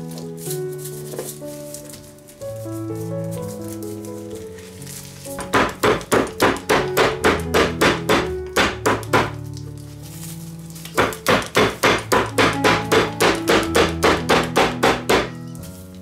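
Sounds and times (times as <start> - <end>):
background music: 0.0 - 16.0
meat mallet pounding meat: 5.3 - 9.4, 10.9 - 15.4.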